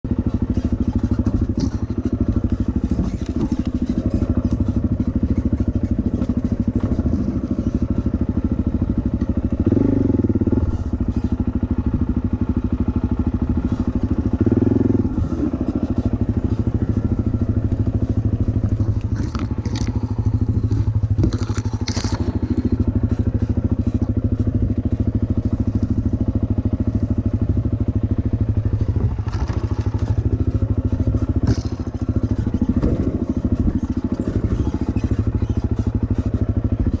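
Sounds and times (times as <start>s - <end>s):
dirt bike engine running: 0.0s - 37.0s
sharp knocks and scrapes: 13.6s - 25.5s.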